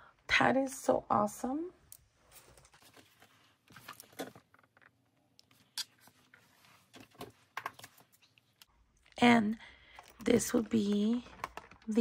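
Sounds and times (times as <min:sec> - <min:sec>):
paper pages rustling: 0:02.3 - 0:04.6, 0:10.0 - 0:12.0.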